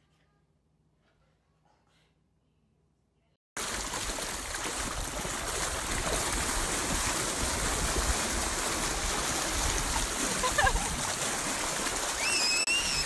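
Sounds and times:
water splashing around horse: 0:03.6 - 0:13.0.

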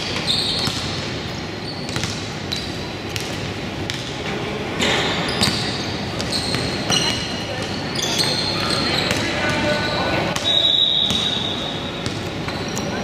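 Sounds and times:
basketball bouncing on court: 0:00.0 - 0:01.2, 0:01.8 - 0:04.2, 0:05.3 - 0:12.7
sneaker squeaks: 0:00.0 - 0:04.1, 0:04.8 - 0:13.0.

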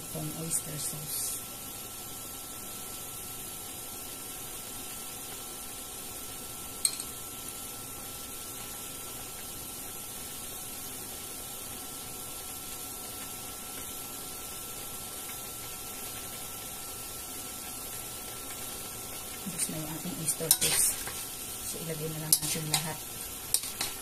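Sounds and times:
low kitchen hiss: 0:00.0 - 0:24.0
metal spoon clinking on pan: 0:06.8 - 0:07.2, 0:20.4 - 0:21.2, 0:22.3 - 0:24.0.

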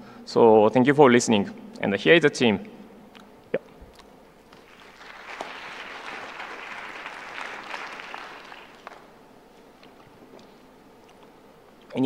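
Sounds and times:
audience applauding: 0:04.6 - 0:09.1.

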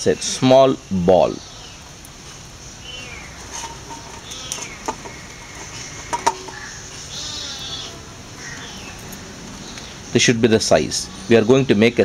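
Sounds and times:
steel bowl knocking: 0:06.1 - 0:06.6.

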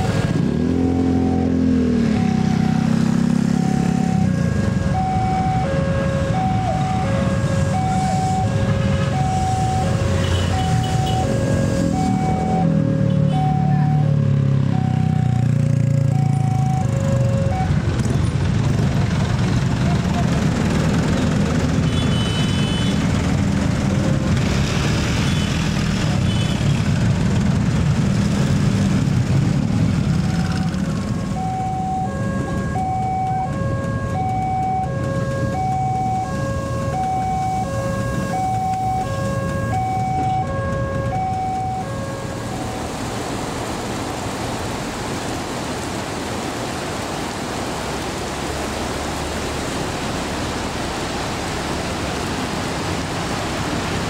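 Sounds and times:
road traffic: 0:00.0 - 0:54.0
two-tone crossing warning signal: 0:00.7 - 0:17.9, 0:30.1 - 0:42.8
heavy rain hiss: 0:42.0 - 0:54.0.

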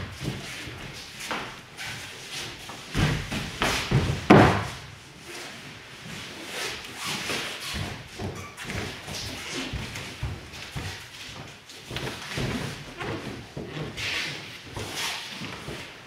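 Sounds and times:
body thudding on foam mats: 0:00.0 - 0:05.0
feet stamping and shuffling: 0:00.0 - 0:16.0.

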